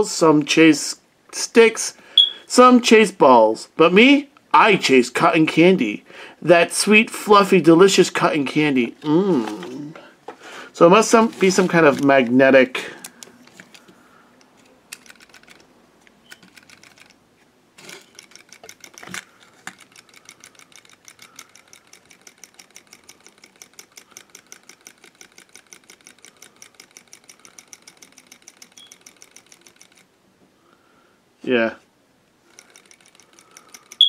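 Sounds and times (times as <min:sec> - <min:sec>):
toy mechanism clicking rapidly: 0:13.0 - 0:17.2, 0:17.8 - 0:30.1, 0:32.4 - 0:34.0.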